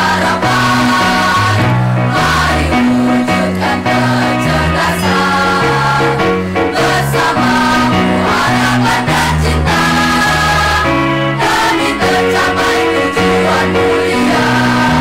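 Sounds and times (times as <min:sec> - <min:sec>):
children's choir singing: 0:00.0 - 0:15.0.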